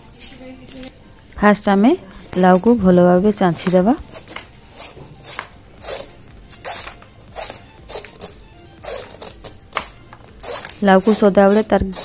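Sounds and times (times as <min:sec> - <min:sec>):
knife scraping gourd skin: 0:03.5 - 0:12.0.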